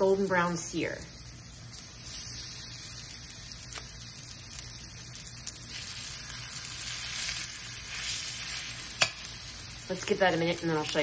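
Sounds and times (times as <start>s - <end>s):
chicken sizzling in oil: 0.0s - 11.0s
oil spattering crackles: 1.5s - 11.0s.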